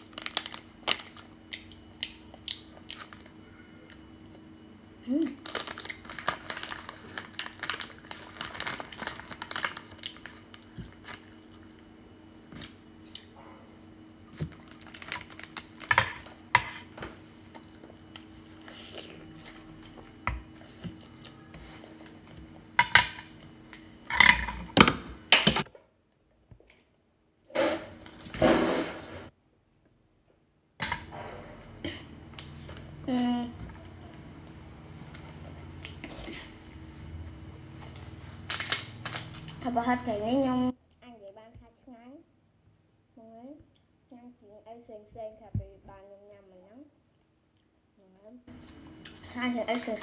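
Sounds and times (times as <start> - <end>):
plastic packet crinkling: 0.0 - 1.6, 5.3 - 11.5, 14.5 - 15.9
low steady hum: 0.0 - 50.0.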